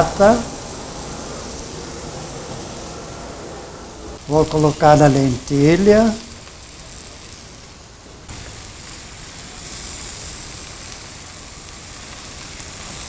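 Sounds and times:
food sizzling in oil: 0:04.2 - 0:13.0.

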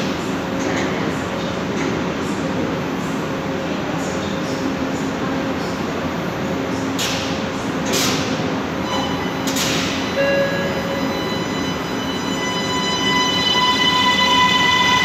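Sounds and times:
high whine of traction equipment: 0:08.8 - 0:15.0.

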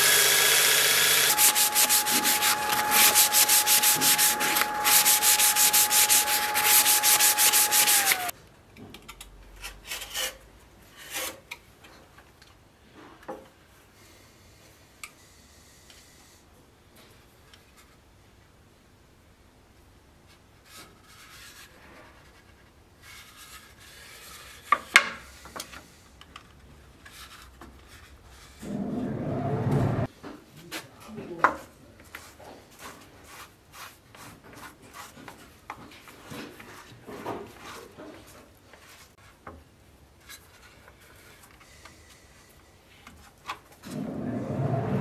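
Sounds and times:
hands handling wooden pieces: 0:01.2 - 0:08.3
faint rubbing on wood: 0:01.3 - 0:08.3
low steady rumble: 0:28.6 - 0:30.1.

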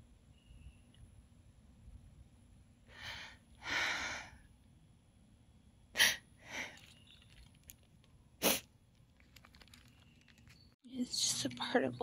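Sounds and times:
person breathing: 0:02.9 - 0:04.5
person sniffing: 0:08.4 - 0:08.7.

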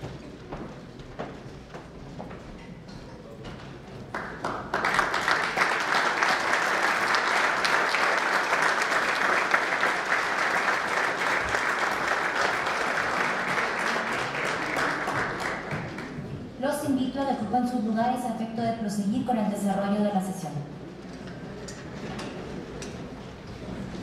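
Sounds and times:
audience applauding: 0:04.0 - 0:16.2.

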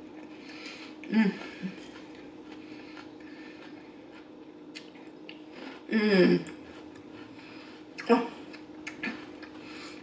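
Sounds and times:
chewing salad: 0:00.0 - 0:10.0
person humming mmm: 0:01.0 - 0:01.8, 0:05.8 - 0:06.7.

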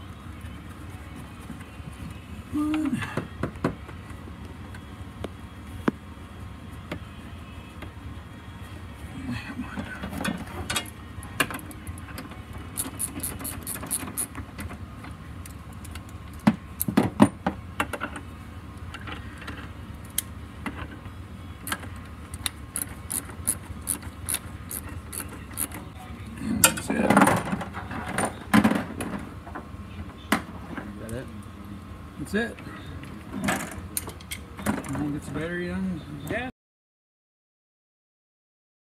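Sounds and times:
hand ratchet clicking: 0:12.8 - 0:14.3, 0:22.8 - 0:25.8.

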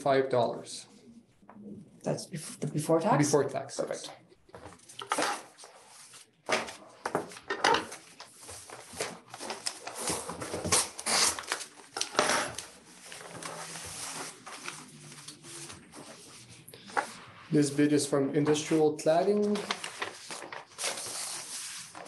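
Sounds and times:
paper rustling: 0:04.5 - 0:17.4, 0:18.4 - 0:22.0
envelope being opened: 0:08.9 - 0:15.8.

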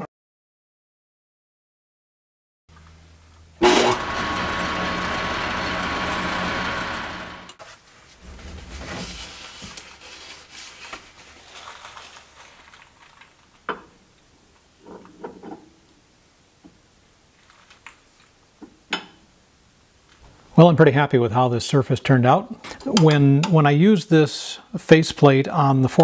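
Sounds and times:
metal lathe running: 0:03.6 - 0:07.6
paper towel rubbing on steel: 0:07.8 - 0:12.4.

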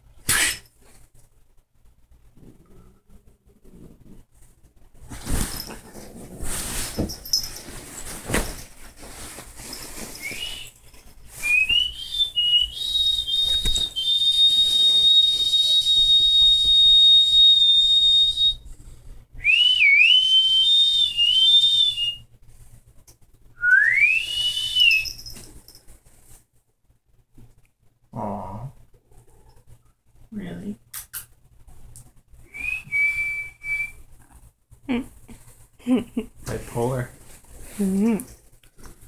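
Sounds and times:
person whistling high notes: 0:10.2 - 0:10.7, 0:11.4 - 0:18.6, 0:19.4 - 0:22.2, 0:23.6 - 0:25.4, 0:32.5 - 0:34.0.

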